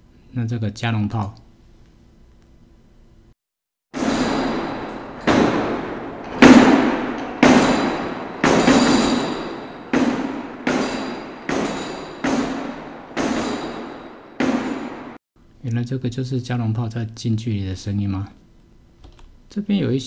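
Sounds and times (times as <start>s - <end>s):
cannon booms: 4.0s - 15.2s.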